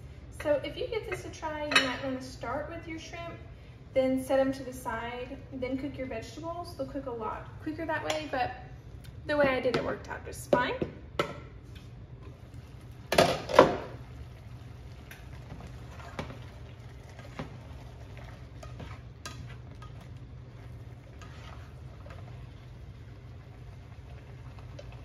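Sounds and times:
low steady hum: 0.0s - 25.0s
cookware clattering: 1.1s - 2.1s
spatula scraping frying pan: 14.2s - 25.0s.

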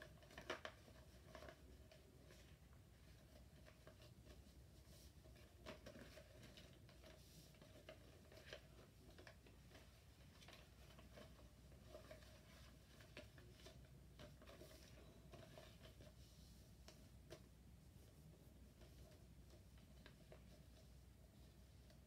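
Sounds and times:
paper being folded and creased: 0.0s - 17.1s.

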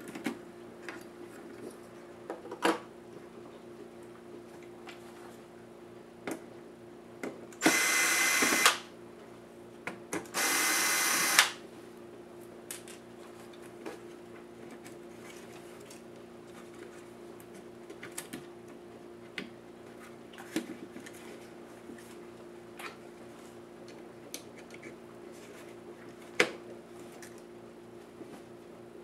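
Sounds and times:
electric screwdriver running: 7.6s - 8.8s, 10.4s - 11.6s.

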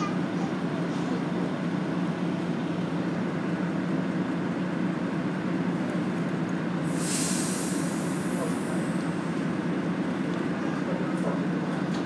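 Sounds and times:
bus engine drone: 0.0s - 12.0s
loud air release hiss: 6.9s - 9.2s.

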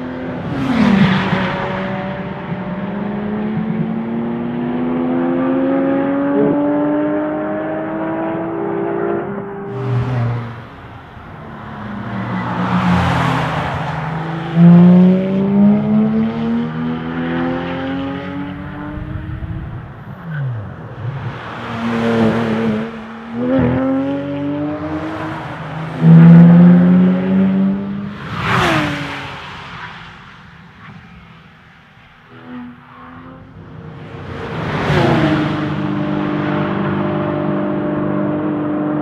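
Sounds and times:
car engines accelerating past: 0.0s - 31.4s, 32.3s - 39.0s.

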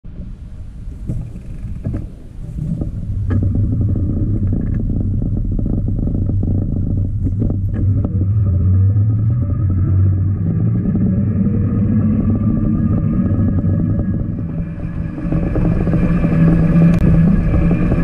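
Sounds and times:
wind noise: 0.0s - 18.0s
trike rolling on wet asphalt: 0.9s - 18.0s
knocks and clicks: 1.1s - 9.4s.

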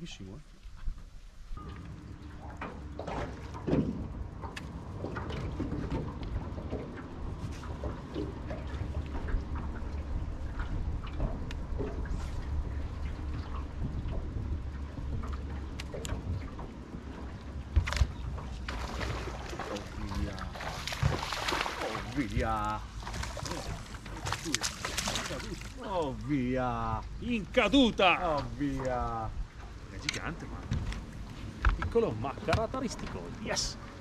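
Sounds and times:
water lapping around boat: 0.0s - 34.0s
wind rumbling on microphone: 0.6s - 25.4s.

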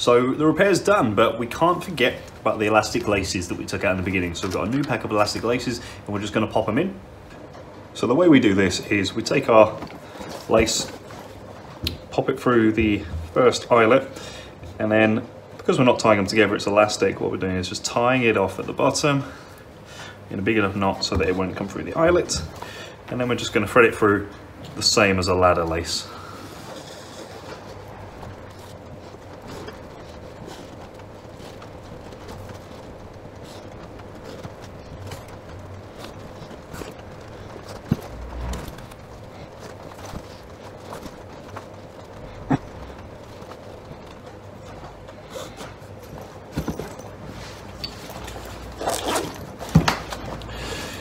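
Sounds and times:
low background hum: 0.0s - 51.0s
lace rustling through eyelets: 19.6s - 51.0s.

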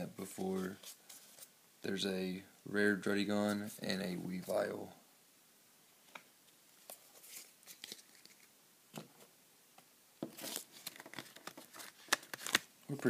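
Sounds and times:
trading cards clicking and rustling: 10.3s - 12.7s.

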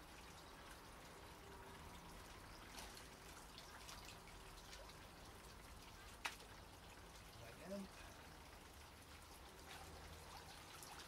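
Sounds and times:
water drips and trickles: 0.0s - 11.0s.

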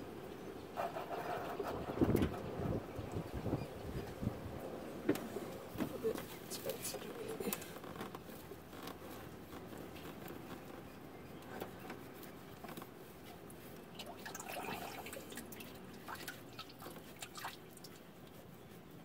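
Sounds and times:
oil filter clicking and rubbing: 6.0s - 18.9s.

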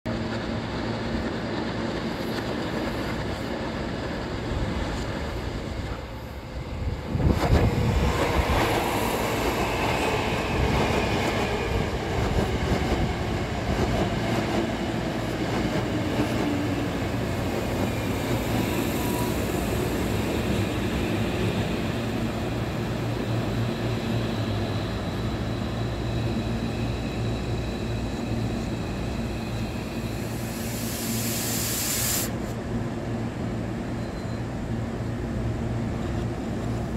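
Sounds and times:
train wheels on rails: 0.1s - 34.6s.

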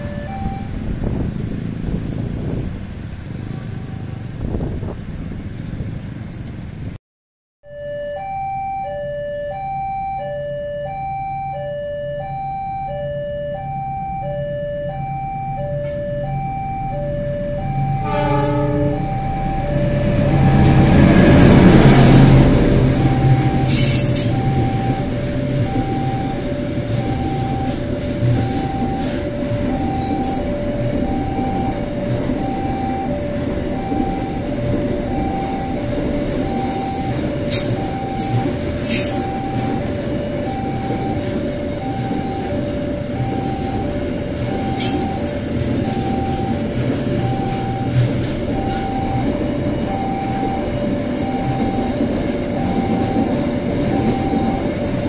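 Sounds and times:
level crossing two-tone alarm: 0.0s - 0.8s, 7.6s - 55.0s
diesel locomotive passing: 0.0s - 7.0s, 9.7s - 55.0s
freight wagons rumbling by: 0.0s - 7.0s, 17.2s - 55.0s
locomotive horn blast: 17.5s - 30.6s
train wheel clicks: 33.4s - 49.9s.

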